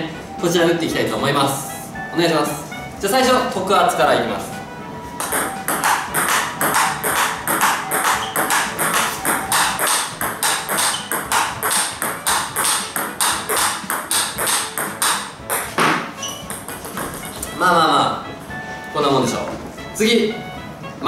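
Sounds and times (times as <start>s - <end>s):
table tennis ball pocks: 5.2s - 17.5s.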